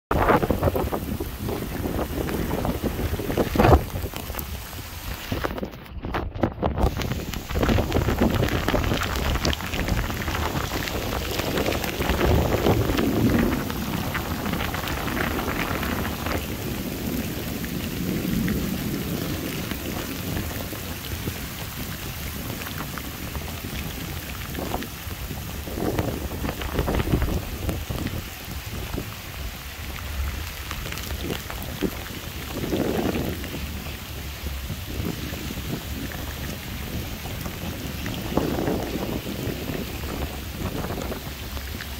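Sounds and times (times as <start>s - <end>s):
heavy rain on pavement: 0.0s - 41.9s
low rumbling: 0.1s - 41.9s.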